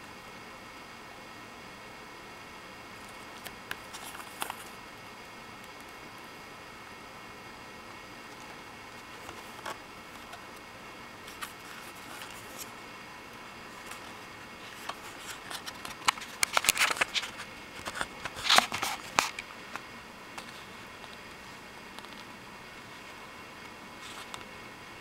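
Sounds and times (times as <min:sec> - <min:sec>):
pages flipping: 0:03.0 - 0:04.8, 0:08.3 - 0:10.4, 0:11.2 - 0:12.8, 0:13.7 - 0:21.4
paper rustling: 0:03.7 - 0:04.7, 0:11.2 - 0:12.7, 0:13.7 - 0:19.8.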